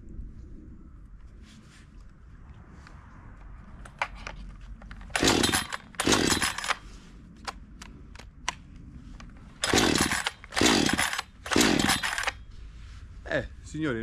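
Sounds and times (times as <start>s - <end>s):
chainsaw pull-starter whirr: 5.0s - 6.8s, 9.5s - 12.4s.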